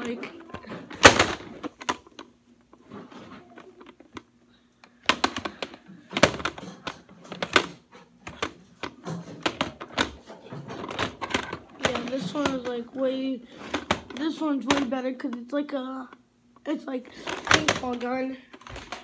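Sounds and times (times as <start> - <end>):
plastic knocks and clicks on wood: 5.1 - 12.8, 13.7 - 14.9.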